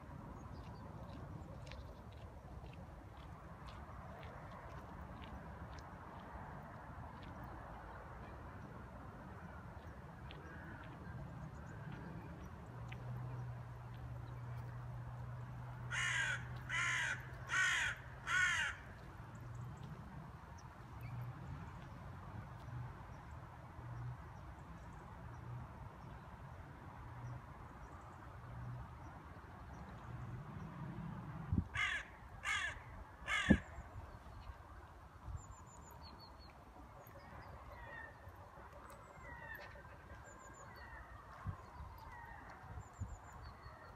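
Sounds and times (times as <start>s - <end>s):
crow cawing: 15.9s - 18.9s, 31.8s - 33.6s.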